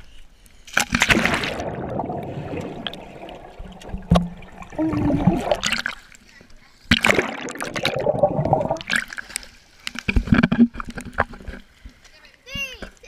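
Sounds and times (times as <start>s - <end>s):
underwater gurgling: 1.0s - 6.2s, 6.9s - 11.6s.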